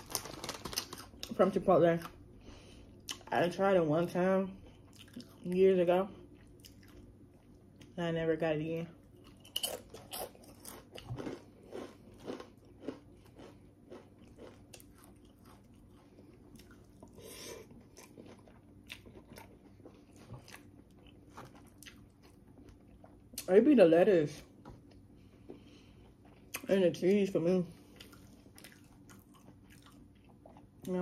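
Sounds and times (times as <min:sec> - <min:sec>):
crunchy chewing: 0:09.1 - 0:23.4, 0:27.8 - 0:30.8.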